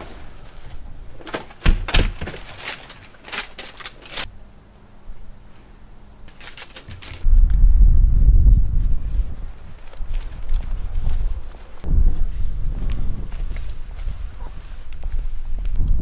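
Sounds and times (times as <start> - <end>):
door thuds: 1.3 - 2.5
wind rumble on microphone: 6.9 - 16.0.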